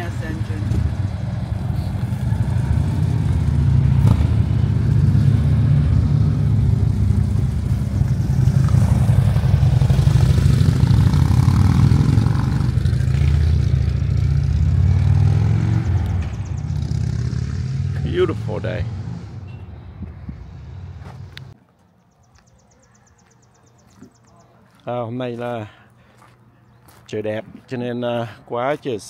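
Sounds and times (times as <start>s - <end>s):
motorcycle engine passing: 0.0s - 21.6s.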